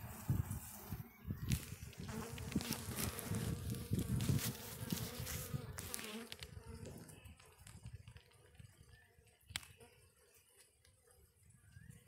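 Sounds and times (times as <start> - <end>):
bees buzzing: 0.0 - 7.6.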